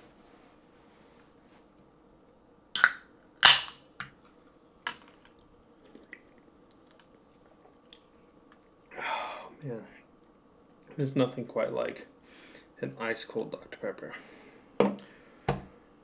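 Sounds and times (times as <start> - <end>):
can cracking open: 2.8 - 3.8.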